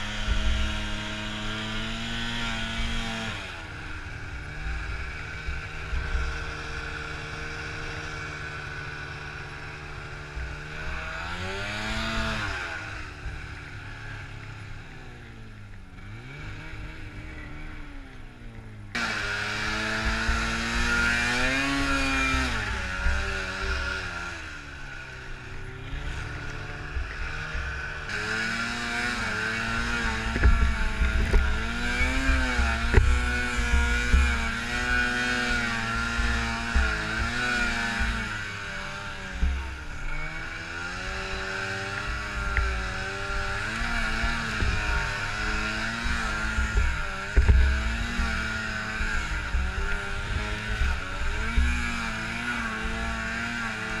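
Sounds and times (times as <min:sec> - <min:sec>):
snowmobile engine revving: 0:00.0 - 0:54.0
wind rumbling on microphone: 0:28.8 - 0:52.9.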